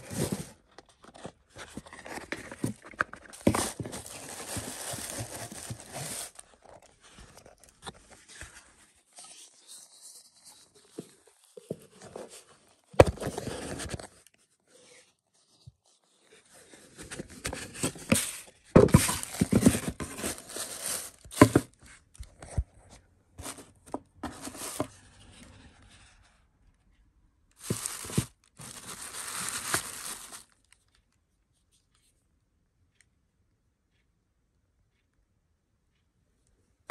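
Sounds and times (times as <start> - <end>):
paper and cardboard rustling: 0.0 - 22.6, 23.4 - 25.2, 27.6 - 30.7.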